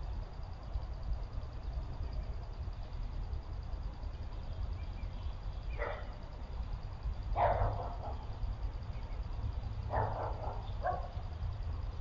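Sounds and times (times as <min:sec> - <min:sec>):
steady low rumble: 0:00.0 - 0:12.0
dog barking: 0:05.8 - 0:06.2, 0:07.4 - 0:08.2, 0:09.9 - 0:11.2.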